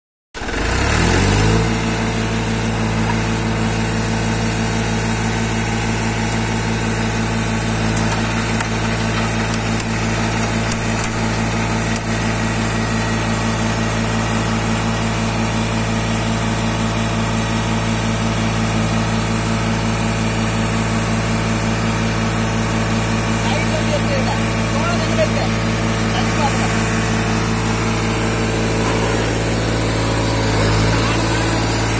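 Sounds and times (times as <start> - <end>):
tractor diesel engine running: 0.4 - 31.9.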